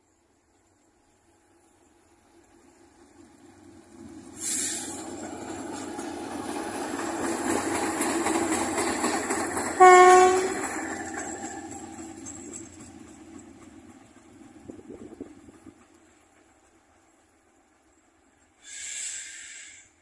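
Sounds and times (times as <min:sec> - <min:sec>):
locomotive engine and wheels: 0:00.0 - 0:20.0
brief hiss: 0:04.4 - 0:05.1, 0:18.6 - 0:20.0
train horn blast: 0:09.8 - 0:10.8.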